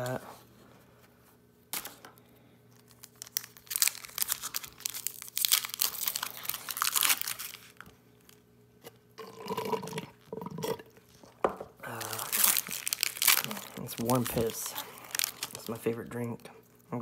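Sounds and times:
foil wrapper crinkling: 0:02.7 - 0:08.5, 0:11.9 - 0:16.9.

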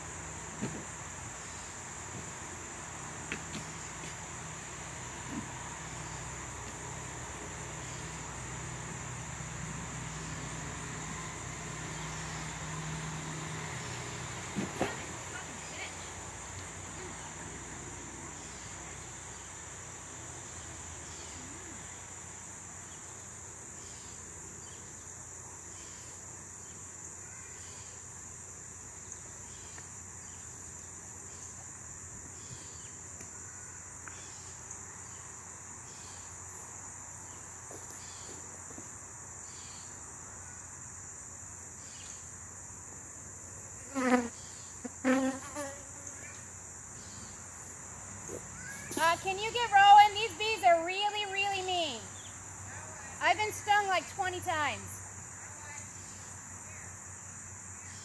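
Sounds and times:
high-pitched insect chorus: 0:00.0 - 0:58.0
honey bees buzzing: 0:43.8 - 0:52.3.

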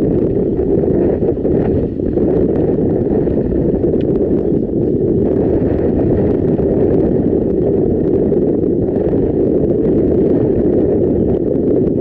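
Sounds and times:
car road and wind noise: 0:00.0 - 0:12.0.

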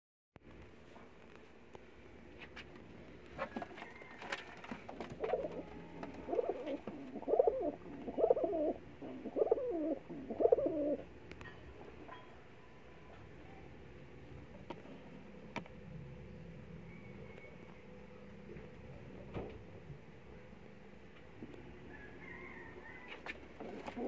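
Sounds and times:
pigeon cooing: 0:05.0 - 0:11.1, 0:22.2 - 0:24.0.

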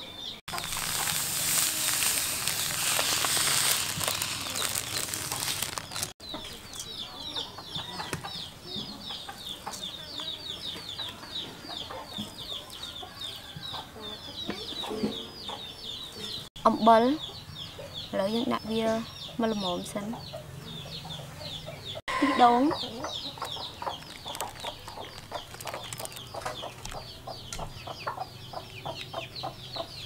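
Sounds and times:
chickens cheeping: 0:00.0 - 0:18.2, 0:18.8 - 0:30.0
loud rustling hiss: 0:00.5 - 0:06.2.

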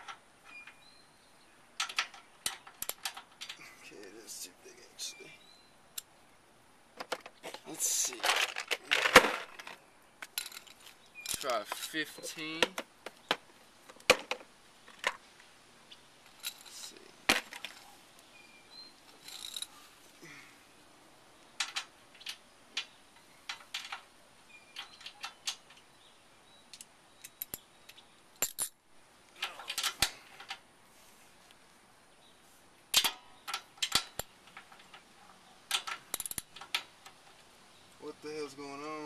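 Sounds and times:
ratchet and socket clicking: 0:35.7 - 0:36.5.

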